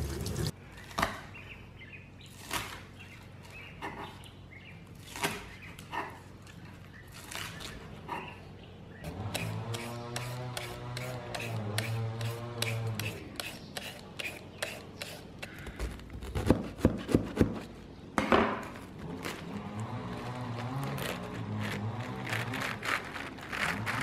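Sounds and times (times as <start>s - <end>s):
engine humming outside: 0.0s - 14.7s, 18.4s - 24.0s
peeler scraping carrot: 9.1s - 15.6s, 18.8s - 24.0s.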